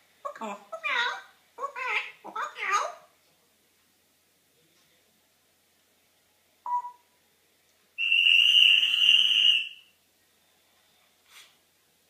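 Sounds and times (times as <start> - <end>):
parrot whistling call: 8.0 - 9.9.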